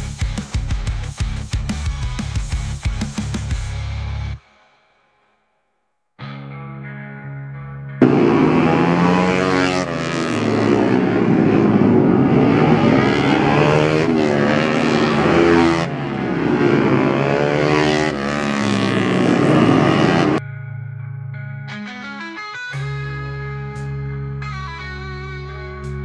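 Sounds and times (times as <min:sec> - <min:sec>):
racing motorcycle engines revving: 0:08.0 - 0:20.4.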